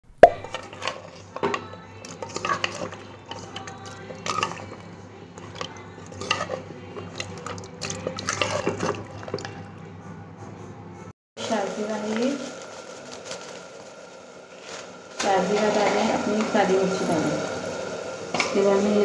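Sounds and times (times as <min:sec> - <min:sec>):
metal spoon stirring in pot: 0:00.2 - 0:09.8
low hum: 0:02.9 - 0:19.0.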